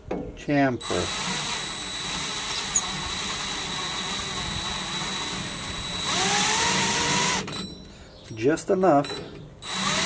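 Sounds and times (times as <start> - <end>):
power drill cutting metal: 0.8 - 7.6, 9.6 - 10.0.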